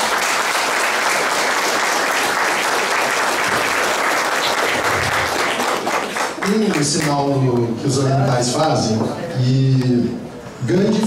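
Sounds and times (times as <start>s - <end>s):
audience applauding: 0.0s - 7.4s.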